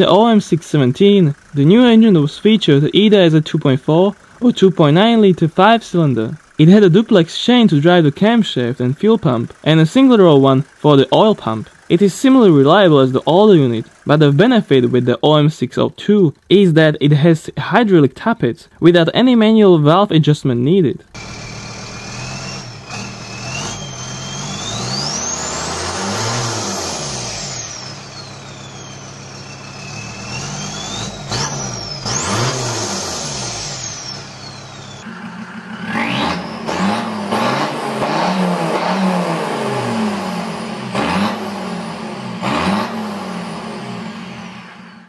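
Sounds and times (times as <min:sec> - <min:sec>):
diesel engine revving: 0:00.0 - 0:17.3, 0:21.1 - 0:45.0
diesel engine idling: 0:00.0 - 0:18.1, 0:21.0 - 0:45.0
high whistle: 0:21.2 - 0:25.5, 0:33.5 - 0:35.1.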